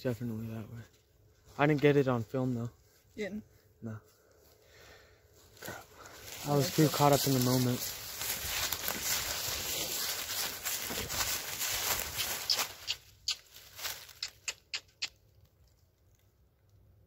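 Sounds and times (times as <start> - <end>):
footsteps crunching dry leaves: 4.4 - 14.6.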